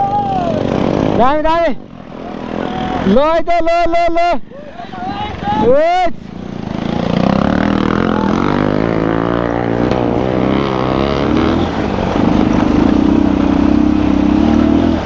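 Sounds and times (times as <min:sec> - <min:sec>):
motorcycle engine running: 0:06.2 - 0:15.0.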